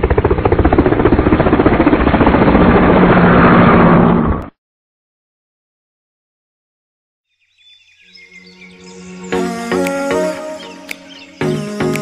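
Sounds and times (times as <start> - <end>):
rapid fluttering synth pulse: 0.0 - 4.4.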